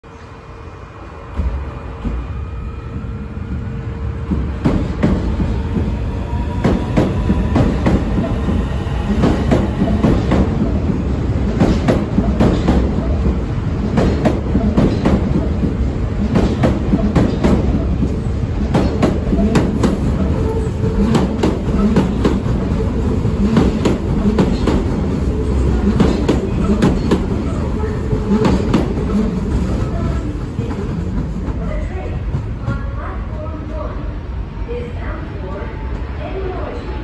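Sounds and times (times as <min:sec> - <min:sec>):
train rumbling past: 0:00.0 - 0:37.0
wheels clacking over rail joints: 0:13.9 - 0:31.6.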